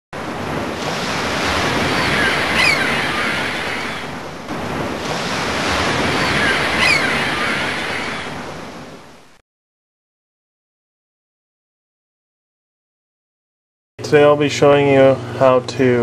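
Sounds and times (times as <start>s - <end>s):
ocean waves washing in: 0.2s - 9.4s
faint high whistling glides: 0.8s - 4.2s, 5.0s - 9.4s.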